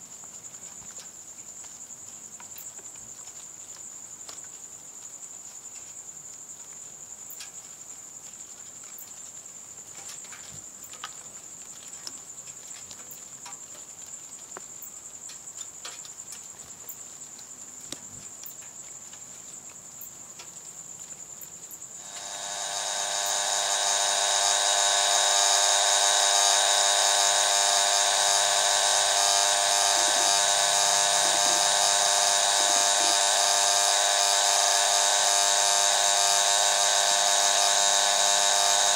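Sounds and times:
faint ticks: 0.0s - 22.4s
cricket trilling: 0.0s - 38.9s
loud steady buzz: 22.0s - 38.9s.

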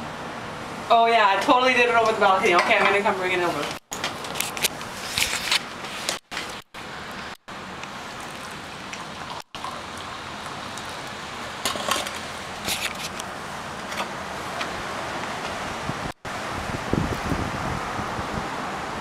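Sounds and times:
outdoor background hiss: 0.0s - 19.0s
crackling rustles: 2.9s - 9.7s, 10.7s - 15.6s.

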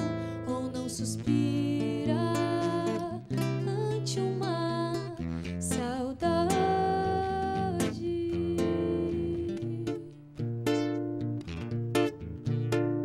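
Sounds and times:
woman singing: 0.0s - 10.4s
acoustic guitar: 0.0s - 13.0s.

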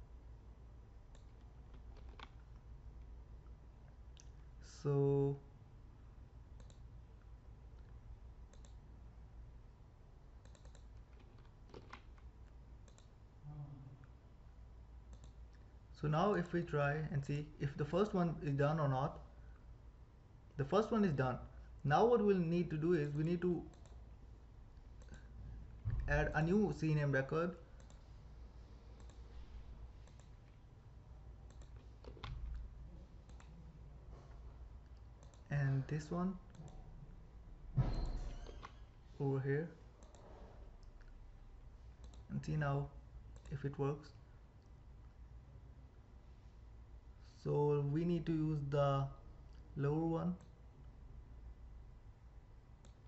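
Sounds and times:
low steady hum: 0.0s - 53.0s
mouse and keyboard clicks: 1.1s - 2.6s, 6.6s - 6.9s, 8.5s - 8.8s, 10.4s - 13.1s, 29.0s - 29.2s, 30.0s - 30.6s, 31.5s - 33.5s, 40.0s - 40.3s.

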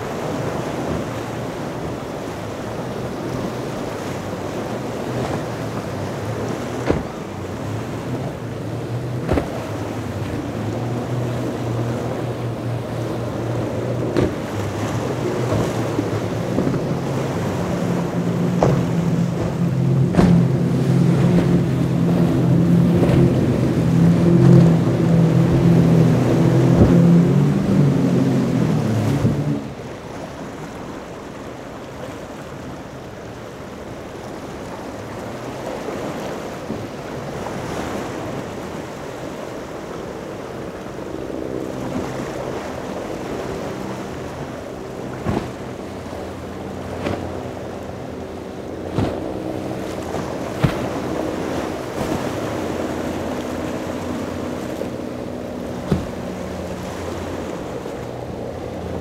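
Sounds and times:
powerboat engines running: 0.0s - 59.0s
surf: 0.0s - 59.0s
sharp smacks: 50.6s - 50.8s.

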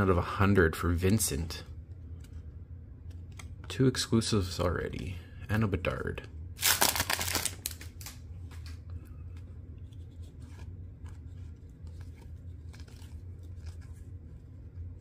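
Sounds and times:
steady low hum: 0.0s - 15.0s
cards clicking and rustling: 6.6s - 15.0s.

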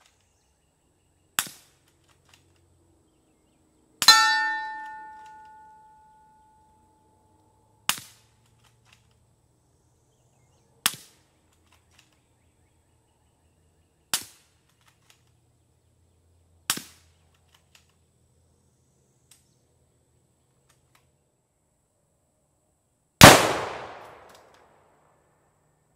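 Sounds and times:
suppressed rifle shots: 23.2s - 24.5s.

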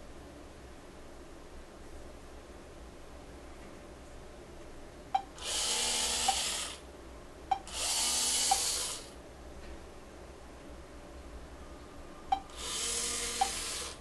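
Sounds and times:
servo motors whirring: 5.4s - 6.8s, 7.7s - 9.1s, 12.5s - 14.0s.

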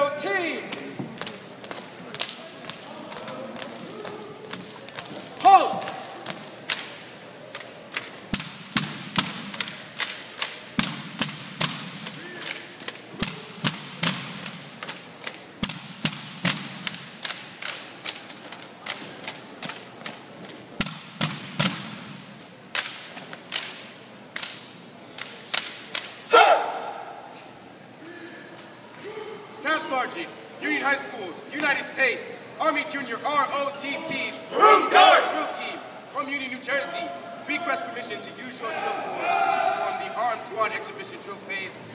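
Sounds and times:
rifle slaps: 5.8s - 26.2s.

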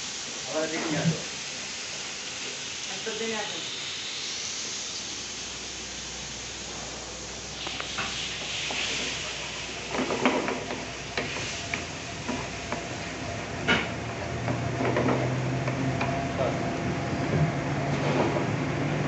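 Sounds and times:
steady hiss: 0.0s - 14.2s.

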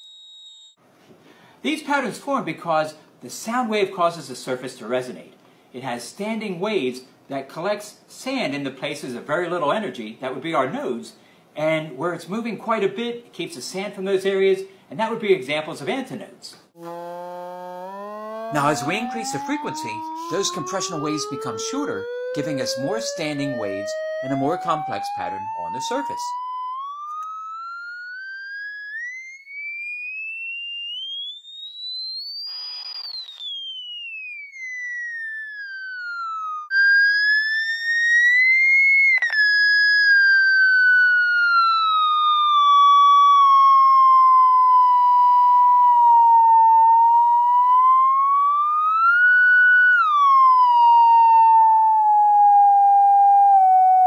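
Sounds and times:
electronic tone sweeping in pitch: 0.0s - 0.7s, 16.8s - 54.0s.

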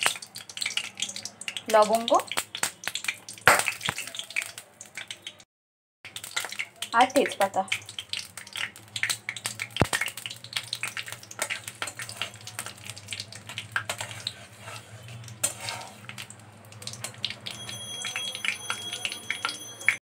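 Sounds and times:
spices sizzling in hot oil: 0.0s - 5.4s, 6.1s - 20.0s
metal spatula scraping pan: 13.5s - 16.2s.

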